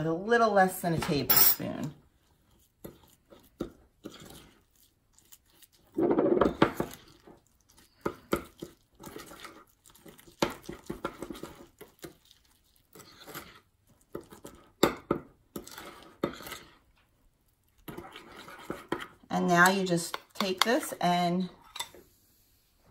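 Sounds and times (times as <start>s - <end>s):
spoon scraping glass bowl: 1.1s - 12.1s, 15.5s - 16.8s, 17.9s - 22.0s.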